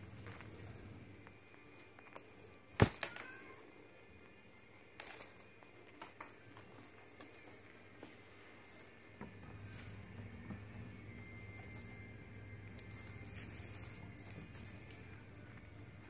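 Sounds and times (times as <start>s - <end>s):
faint low hum: 0.0s - 16.0s.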